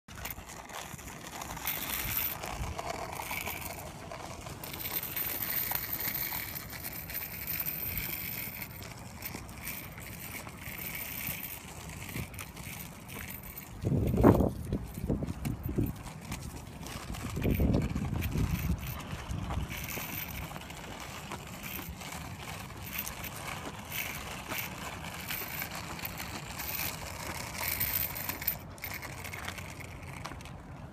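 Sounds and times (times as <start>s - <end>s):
skateboard wheels rolling on asphalt: 0.1s - 30.9s.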